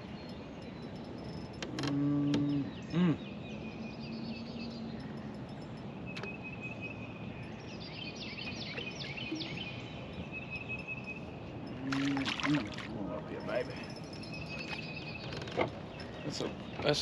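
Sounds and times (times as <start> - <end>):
person humming hm: 1.7 - 3.2, 11.8 - 12.8.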